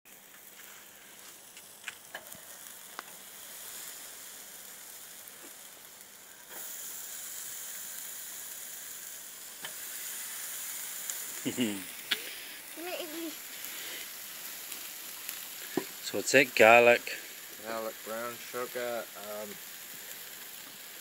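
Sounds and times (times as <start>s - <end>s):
fish sizzling on grill: 0.1s - 21.0s
sharp pops: 14.7s - 16.0s.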